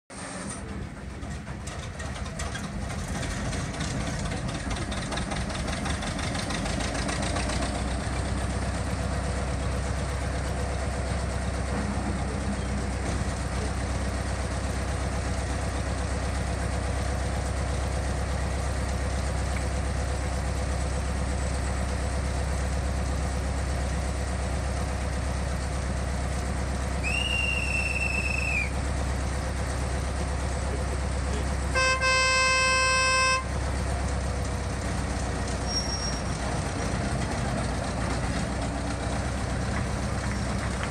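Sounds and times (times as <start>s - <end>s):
diesel locomotive engine idling: 0.1s - 40.9s
locomotive horn blast: 31.7s - 33.6s.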